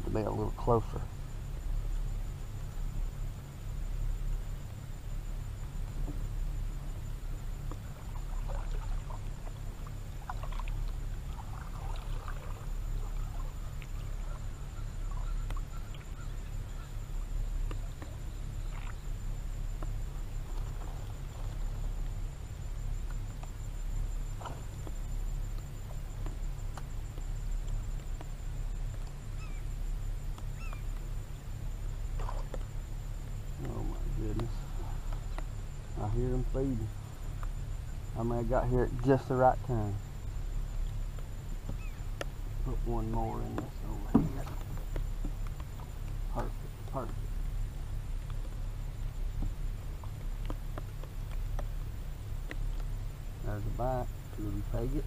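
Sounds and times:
faint high-pitched whine: 0.0s - 55.0s
steady low hum: 0.0s - 55.0s
short bird calls: 12.9s - 17.2s, 29.4s - 29.7s, 30.5s - 30.9s, 41.7s - 42.1s.

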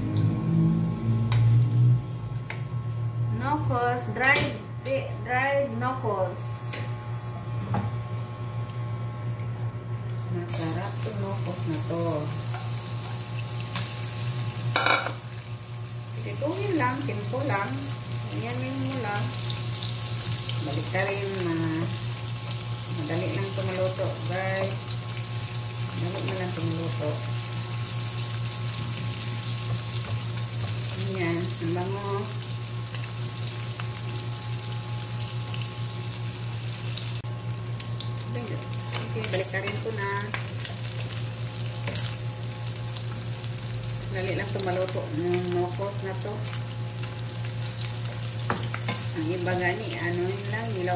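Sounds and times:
fish sizzling in hot oil: 10.5s - 50.9s.

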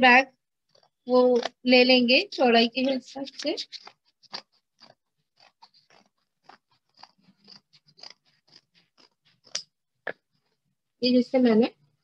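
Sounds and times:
scissors cutting paper: 0.6s - 9.8s.

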